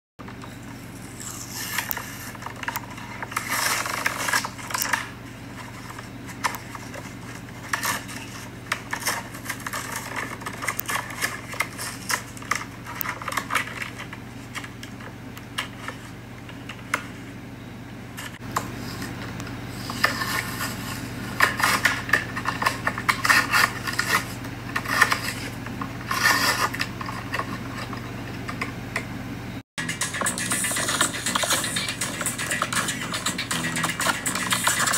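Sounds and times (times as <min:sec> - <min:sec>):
steady low hum: 0:00.2 - 0:34.9
plastic packaging crackling: 0:00.9 - 0:14.8.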